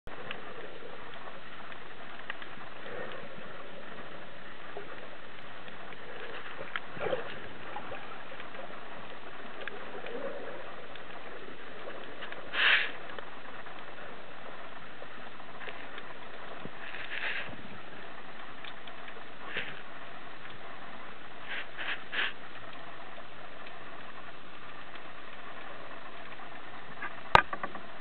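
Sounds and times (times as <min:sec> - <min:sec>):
faint clicks: 0:00.1 - 0:28.0
underwater hiss: 0:11.4 - 0:13.1, 0:16.8 - 0:17.7, 0:21.4 - 0:22.4.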